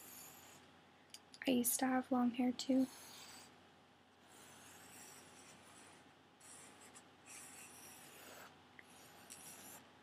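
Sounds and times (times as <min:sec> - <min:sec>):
pencil scratching on paper: 0:00.0 - 0:00.6, 0:02.7 - 0:03.6, 0:04.2 - 0:09.9.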